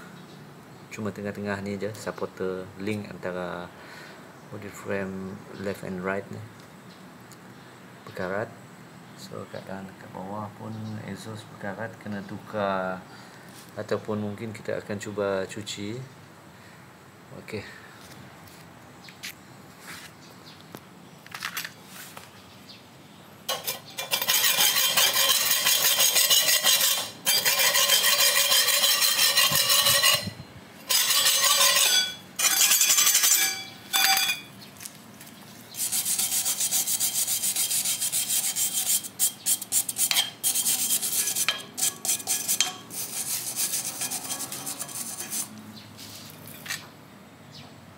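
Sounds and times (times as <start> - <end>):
abrasive scrubbing on metal: 23.5 - 34.5, 35.7 - 46.6.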